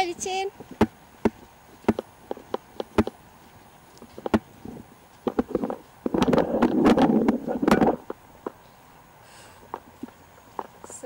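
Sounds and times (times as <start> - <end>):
rustling on the microphone: 0.5 - 8.9
footsteps on a dirt trail: 0.6 - 8.8.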